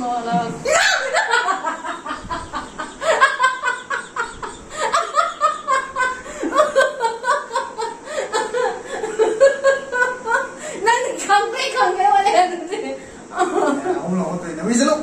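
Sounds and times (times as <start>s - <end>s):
woman laughing: 0.6s - 11.2s.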